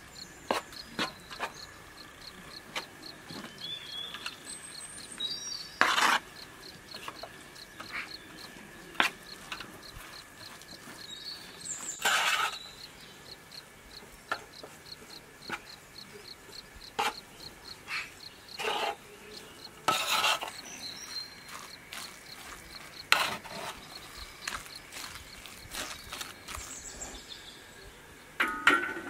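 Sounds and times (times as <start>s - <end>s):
spoon scraping metal pot: 18.5s - 19.0s, 19.8s - 20.7s.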